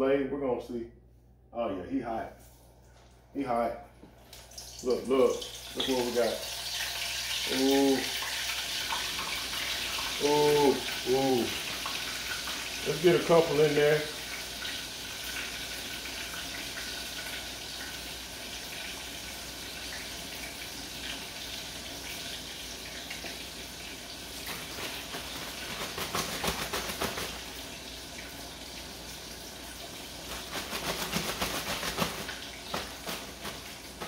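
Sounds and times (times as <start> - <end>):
fish frying in grease: 4.4 - 34.0
plastic bag rattling: 24.6 - 27.4, 30.3 - 34.0.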